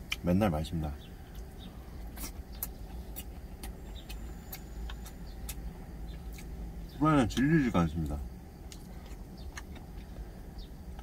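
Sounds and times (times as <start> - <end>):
mouth chewing with clicks and smacks: 0.0 - 0.3, 1.2 - 6.6, 7.3 - 10.2
steady low rumble: 0.0 - 11.0.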